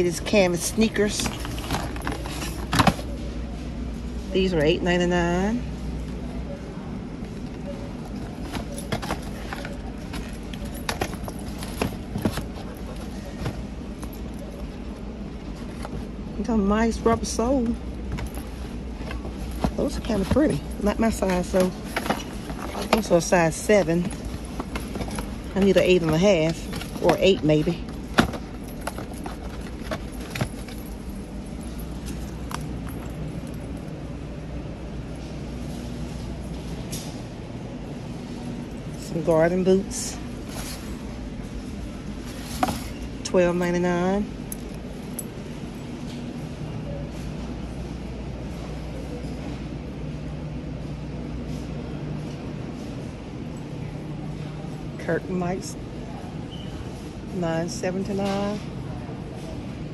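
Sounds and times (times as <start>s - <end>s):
steady low hum: 0.0s - 59.9s
keys jingling: 8.0s - 14.9s, 17.9s - 34.2s.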